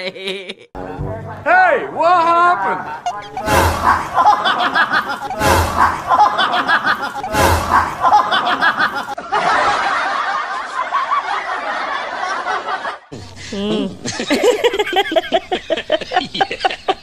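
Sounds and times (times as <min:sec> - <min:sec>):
many people laughing: 0:02.6 - 0:17.0.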